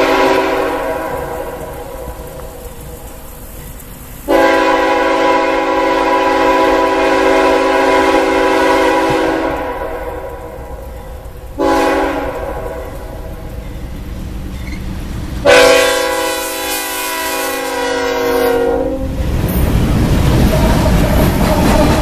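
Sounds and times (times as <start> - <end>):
locomotive air horn blasts: 0.0 - 2.1, 4.3 - 10.8, 11.6 - 13.4, 15.4 - 19.2
train rumble: 0.0 - 22.0.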